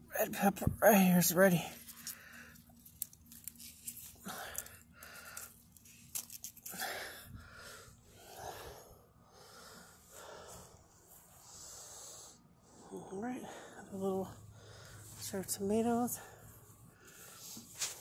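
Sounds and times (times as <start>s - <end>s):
person breathing: 1.8s - 2.7s, 4.0s - 5.9s, 6.6s - 15.3s, 16.1s - 18.0s.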